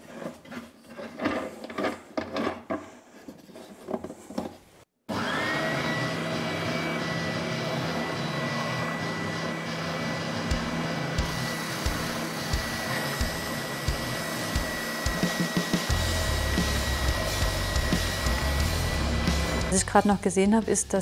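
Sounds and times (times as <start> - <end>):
spindle sander motor whining: 5.1 - 19.8.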